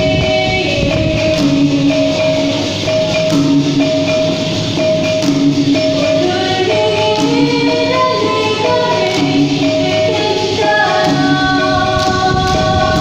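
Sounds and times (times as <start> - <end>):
girl singing into microphone: 0.0 - 2.3, 6.1 - 13.0
rattling percussion beat: 0.0 - 13.0.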